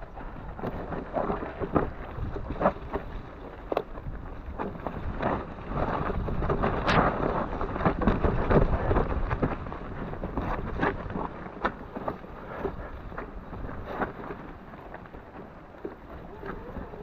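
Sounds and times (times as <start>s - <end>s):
bike tyres rolling over stones: 0.0s - 17.0s
wind on microphone: 0.0s - 17.0s.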